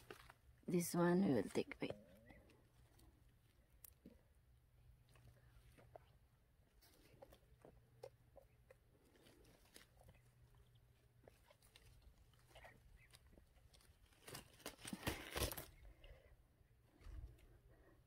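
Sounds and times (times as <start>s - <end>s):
faint low hum: 0.0s - 18.0s
bramble leaves rustling: 9.0s - 16.0s.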